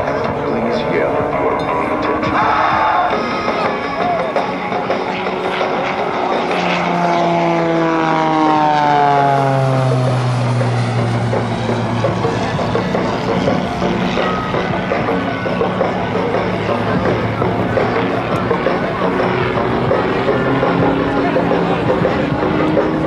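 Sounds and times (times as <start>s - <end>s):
biplane engine and propeller droning: 0.0s - 23.0s.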